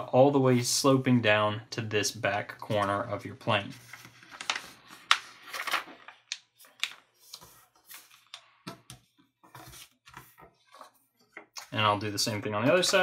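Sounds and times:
paper being folded and creased: 0:02.6 - 0:11.7.

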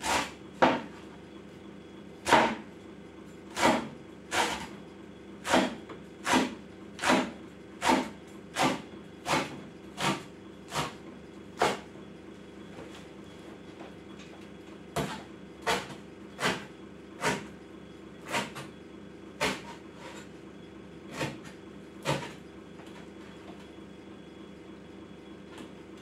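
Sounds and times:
cleaver chopping on wooden board: 0:05.4 - 0:10.9.

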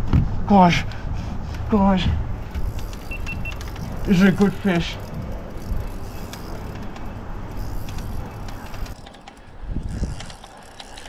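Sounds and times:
wind and handling rumble: 0:00.0 - 0:11.0
fishing reel clicking: 0:02.3 - 0:11.0.

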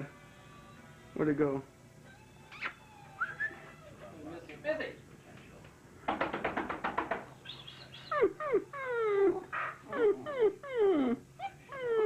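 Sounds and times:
dog whining and yipping: 0:02.0 - 0:04.1, 0:07.5 - 0:12.0.

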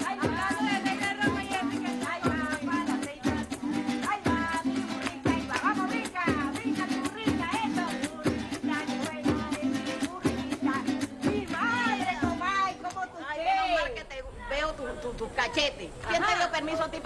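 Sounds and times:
person singing: 0:00.0 - 0:12.8
cuatro and guitar strumming: 0:00.0 - 0:13.1.

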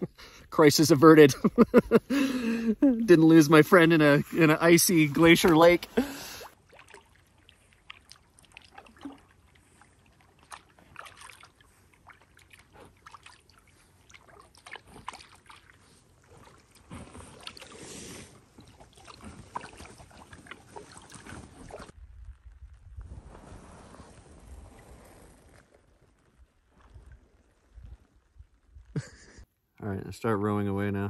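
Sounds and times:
water swishing: 0:03.3 - 0:22.0
paddles dripping and splashing: 0:03.7 - 0:22.4.

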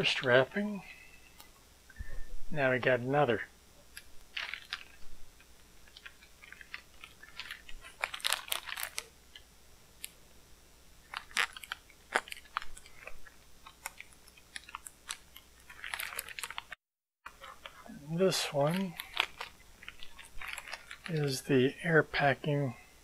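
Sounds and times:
plastic wrap crinkling: 0:03.9 - 0:10.2, 0:11.0 - 0:21.6.

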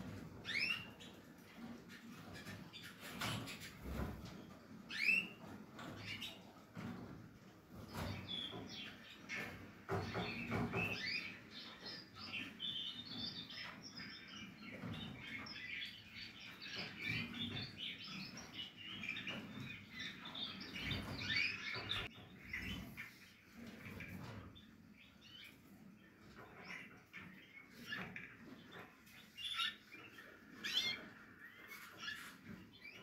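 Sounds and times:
canaries chirping: 0:00.0 - 0:33.0.

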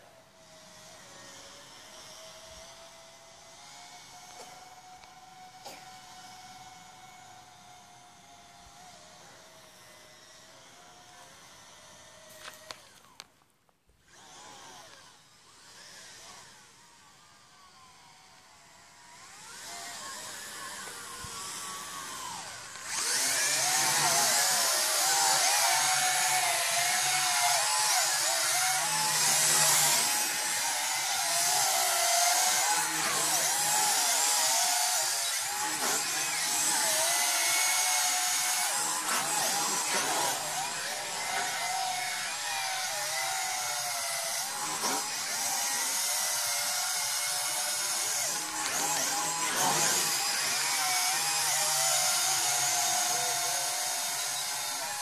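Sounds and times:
drone propellers whining: 0:18.9 - 0:55.0.

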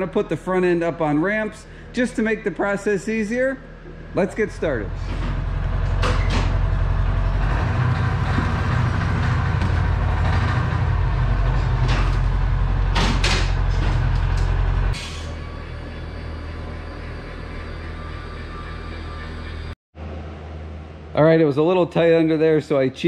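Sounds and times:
utility vehicle engine running: 0:03.9 - 0:19.8.

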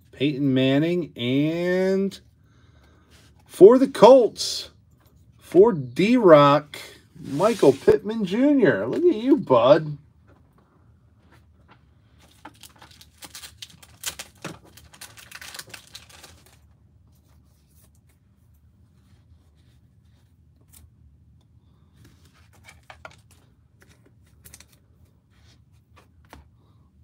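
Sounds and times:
packaging tearing and crinkling: 0:12.3 - 0:16.7.

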